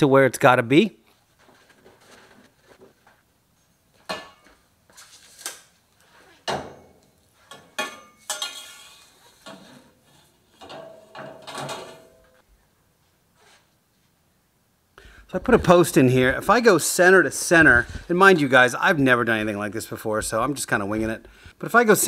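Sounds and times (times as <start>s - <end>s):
metallic clanks and scrapes: 6.5s - 12.4s.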